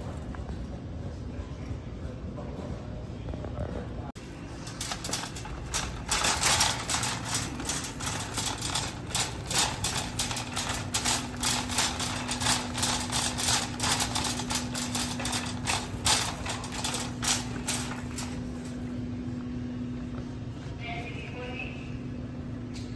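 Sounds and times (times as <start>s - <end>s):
steady low hum: 0.0s - 22.9s
shopping cart rattling: 4.2s - 19.0s.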